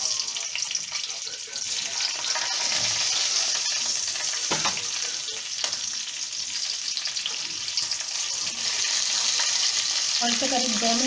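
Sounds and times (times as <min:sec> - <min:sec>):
chillies sizzling in hot oil: 0:00.0 - 0:11.0
soft knocks in a pan: 0:04.5 - 0:04.9.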